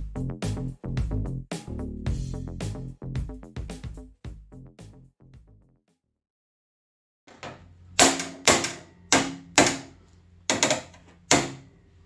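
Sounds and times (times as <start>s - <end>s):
hammer blows on metal: 7.4s - 11.7s.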